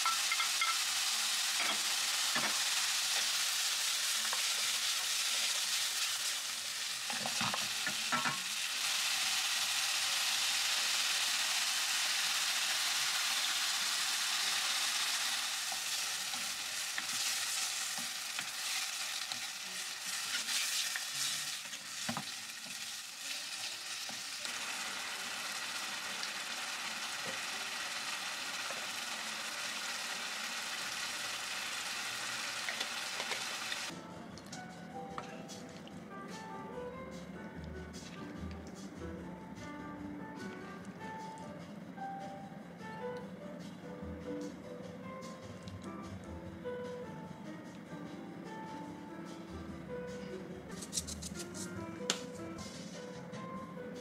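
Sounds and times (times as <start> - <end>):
food sizzling in a frying pan: 0.0 - 33.9.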